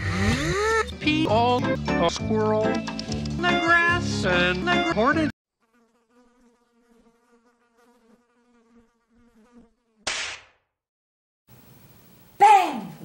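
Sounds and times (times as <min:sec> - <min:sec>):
music: 0:00.0 - 0:05.3.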